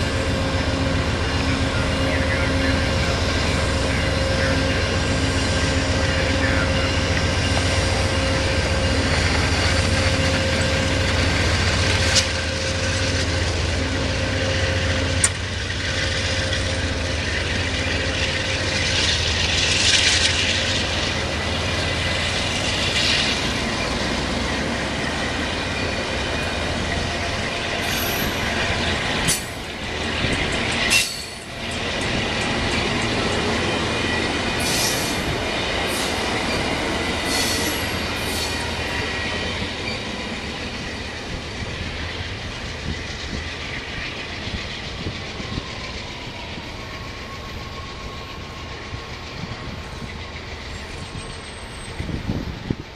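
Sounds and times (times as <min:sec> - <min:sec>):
locomotive engine hum: 0:00.0 - 0:52.9
train wheels on rails: 0:00.0 - 0:52.9
wheel squeals: 0:44.5 - 0:52.5.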